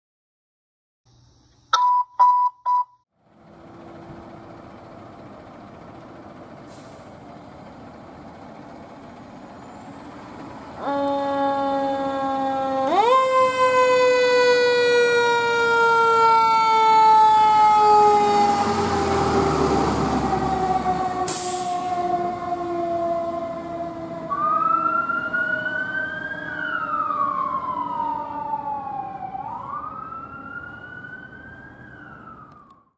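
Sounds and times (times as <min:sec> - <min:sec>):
truck engine revving: 0:03.2 - 0:28.2
fire engine siren wailing: 0:09.1 - 0:32.9
short sharp hiss: 0:21.3 - 0:21.9.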